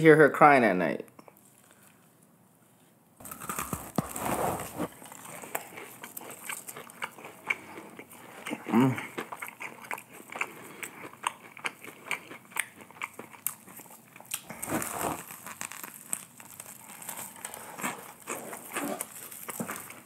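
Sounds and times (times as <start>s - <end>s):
chewing crispy fried chicken: 3.2s - 4.2s, 4.8s - 20.0s.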